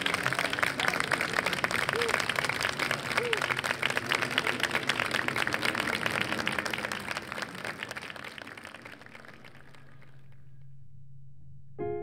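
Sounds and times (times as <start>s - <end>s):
audience applauding: 0.0s - 10.4s
faint low hum: 0.0s - 12.0s.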